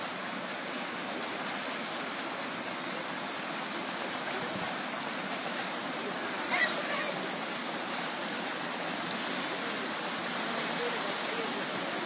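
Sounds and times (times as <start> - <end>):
rushing river: 0.0 - 12.0.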